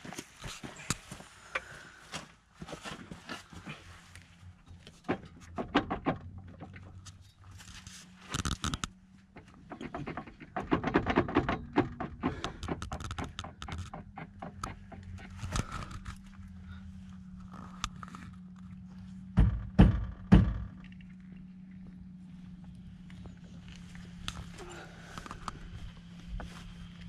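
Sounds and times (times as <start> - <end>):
steady low hum: 0.5 - 27.0
knocks and scrapes on metal axle: 4.6 - 16.8.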